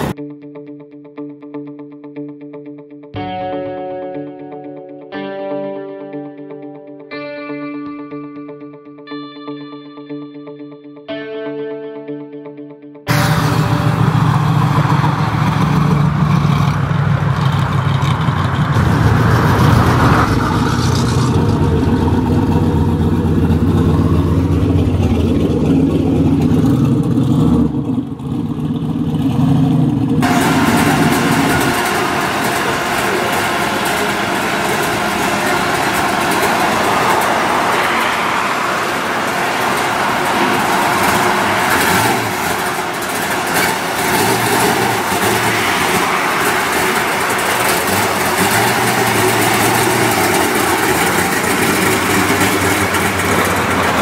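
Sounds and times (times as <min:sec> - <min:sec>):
loud car engines driving by: 0:13.1 - 0:54.0.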